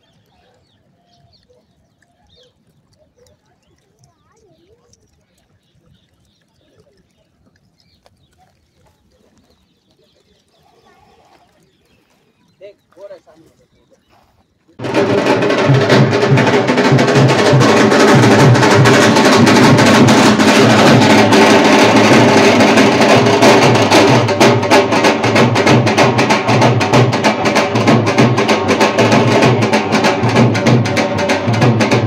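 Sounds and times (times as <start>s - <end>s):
music with drum beat: 14.8s - 32.0s.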